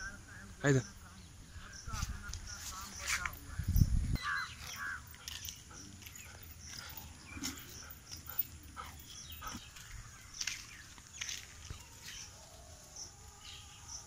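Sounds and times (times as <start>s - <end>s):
dog panting and snuffling: 5.0s - 10.0s.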